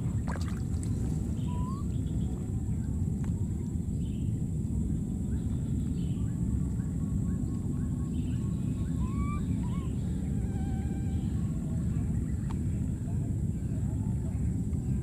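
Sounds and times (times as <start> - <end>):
thin whistled calls: 0.0 - 2.4, 5.3 - 12.5
faint short chirping calls: 0.0 - 2.5
steady low rumble: 0.0 - 15.0.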